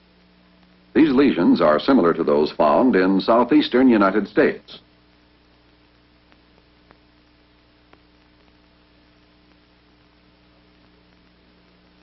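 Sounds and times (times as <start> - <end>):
faint electrical hum with hiss: 0.0 - 12.0
faint clicks: 6.3 - 9.7.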